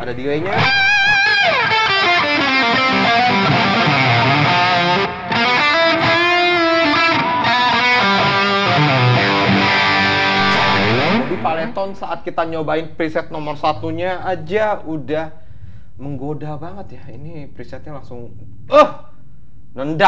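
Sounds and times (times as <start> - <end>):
distorted electric guitar with delay: 0.6 - 12.2.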